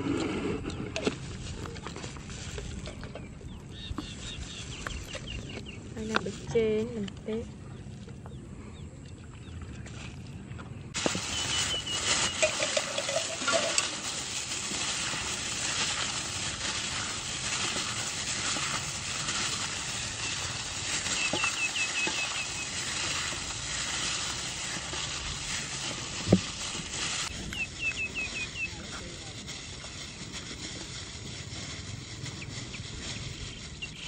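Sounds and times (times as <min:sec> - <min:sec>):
plastic bag crinkling: 0:11.0 - 0:34.0.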